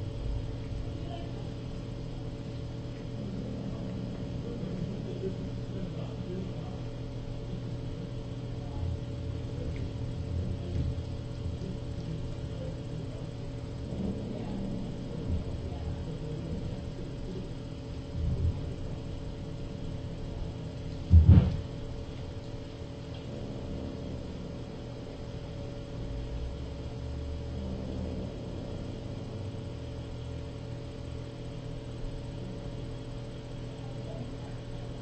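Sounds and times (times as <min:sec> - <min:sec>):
low room hum: 0:00.0 - 0:35.0
dull thump: 0:21.1 - 0:21.6.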